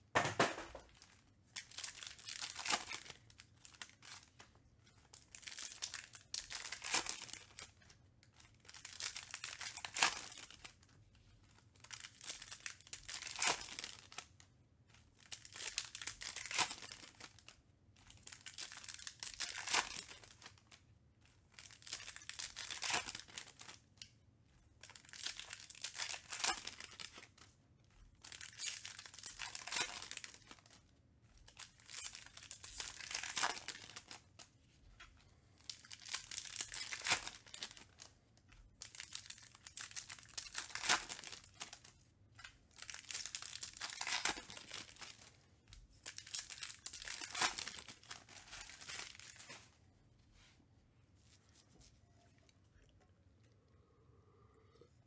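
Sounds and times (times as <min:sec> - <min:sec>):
foil packs crinkling and tearing: 0:00.9 - 0:04.3, 0:05.1 - 0:07.8, 0:08.6 - 0:10.8, 0:11.8 - 0:14.3, 0:15.2 - 0:17.5, 0:18.2 - 0:20.6, 0:21.6 - 0:23.8, 0:24.9 - 0:27.5, 0:28.2 - 0:30.8, 0:31.5 - 0:34.3, 0:35.6 - 0:38.1, 0:38.8 - 0:41.9, 0:42.7 - 0:45.3, 0:45.9 - 0:49.7.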